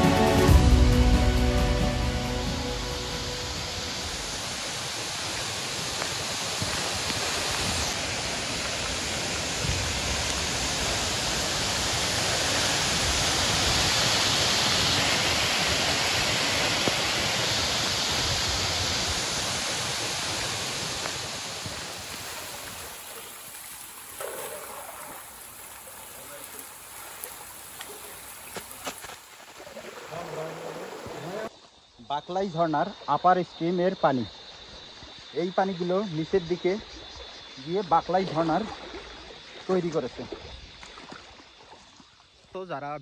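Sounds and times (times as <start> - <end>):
waterfall rushing: 0.0 - 31.5.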